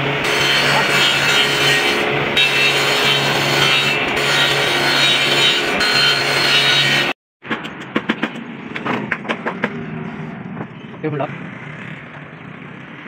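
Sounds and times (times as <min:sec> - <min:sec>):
table saw cutting board: 0:00.0 - 0:07.2.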